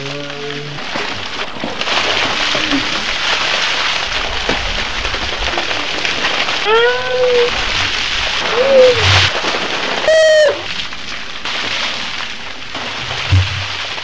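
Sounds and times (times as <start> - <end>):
water splashing over people: 0.0 - 14.0
person shrieking: 6.7 - 7.5, 8.4 - 9.1, 10.1 - 10.7.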